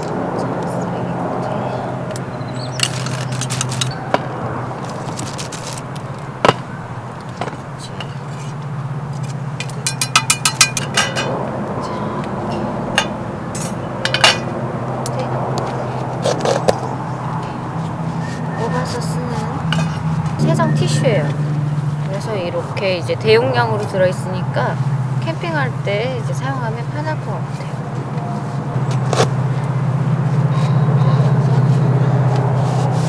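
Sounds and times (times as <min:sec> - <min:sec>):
steady low hum: 0:00.0 - 0:32.7
quick run of clicks: 0:02.8 - 0:04.0.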